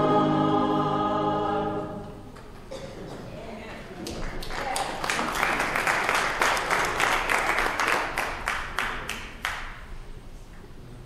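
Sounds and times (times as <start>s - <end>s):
congregation applauding: 4.0s - 9.9s.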